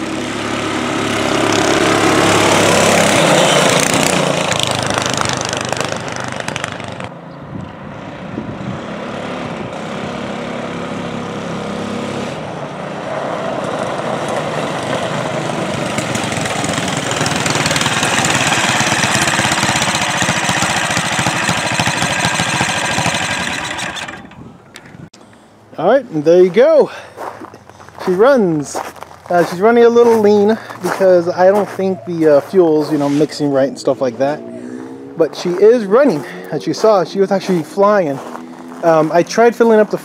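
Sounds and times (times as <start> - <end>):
mini bike engine running: 0.0 - 7.1, 14.0 - 24.5.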